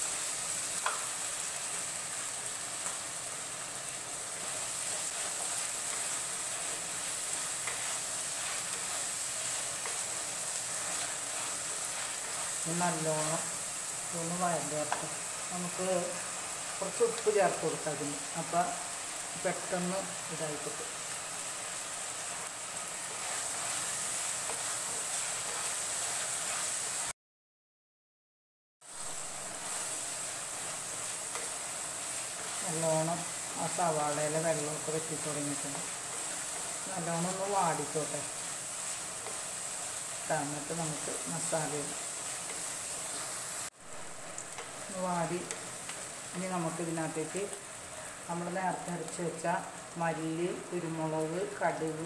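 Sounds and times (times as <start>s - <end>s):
vegetables sizzling in oil: 0.0s - 27.2s, 28.8s - 52.0s
wooden spatula stirring: 4.2s - 12.8s, 22.8s - 26.9s.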